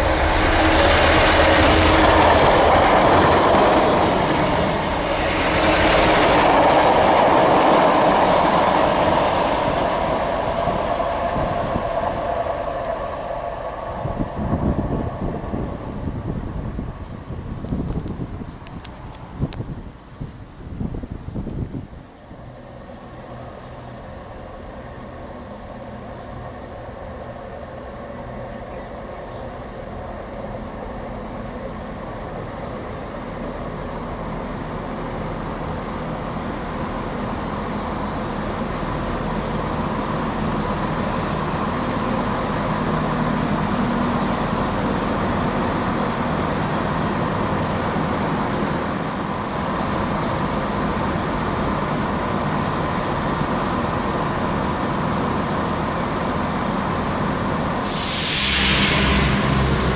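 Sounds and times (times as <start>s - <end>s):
diesel train engines: 0.0s - 59.9s
train wheels on rails: 0.0s - 59.9s
thin high whine: 57.6s - 59.9s.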